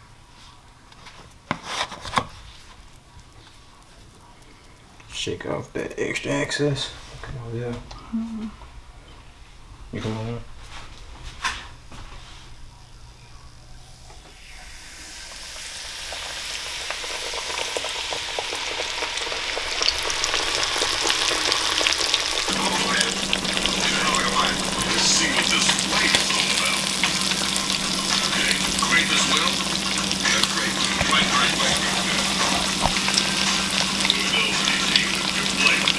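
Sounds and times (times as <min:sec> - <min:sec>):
fish fillets frying in hot oil: 0:14.4 - 0:35.9
low steady hum: 0:20.0 - 0:35.9.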